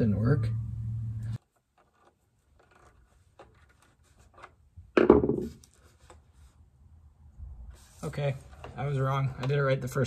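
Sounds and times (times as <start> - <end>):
small clicks and scrapes: 1.4 - 4.6.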